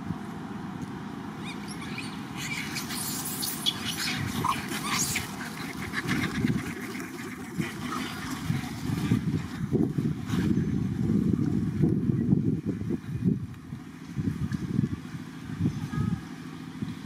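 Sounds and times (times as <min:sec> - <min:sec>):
monkeys calling: 0:01.3 - 0:09.4.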